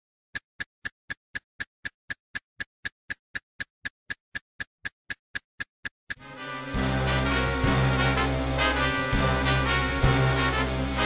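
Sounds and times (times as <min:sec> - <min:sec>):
sharp ticking clicks: 0:00.3 - 0:06.2.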